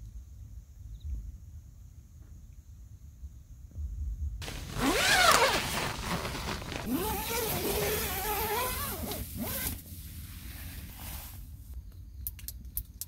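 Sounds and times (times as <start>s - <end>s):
tent zipper being pulled: 4.4s - 11.4s.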